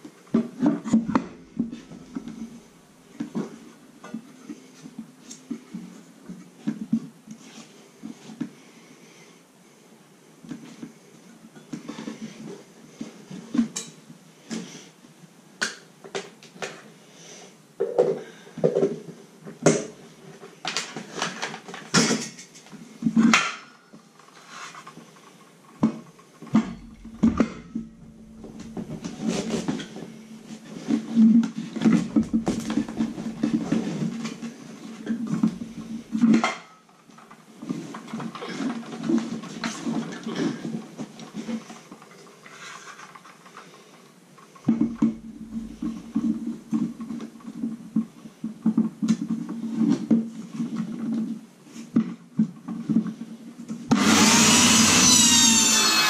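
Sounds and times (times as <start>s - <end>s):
low hum: 0.9s - 3.1s, 26.6s - 30.8s, 31.9s - 34.1s, 35.3s - 36.2s, 44.8s - 47.0s
tools knocking on wooden floor: 26.6s - 29.9s, 32.0s - 33.9s.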